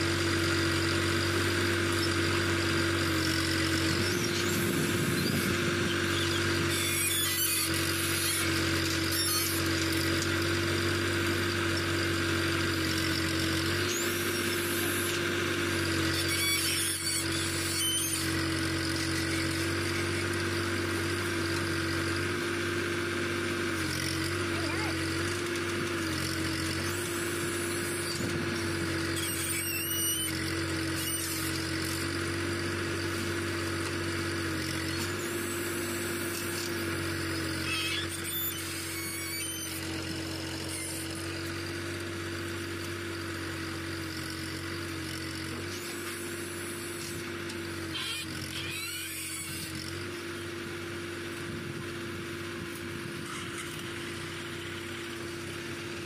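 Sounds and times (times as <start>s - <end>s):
tractor diesel engine running: 0.0s - 56.0s
high squeals: 3.8s - 9.7s, 16.1s - 20.1s, 29.0s - 31.5s, 37.5s - 40.0s.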